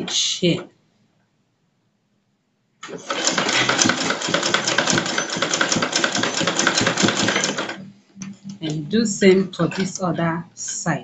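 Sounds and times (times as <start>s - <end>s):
sewing machine stitching: 2.8s - 7.8s.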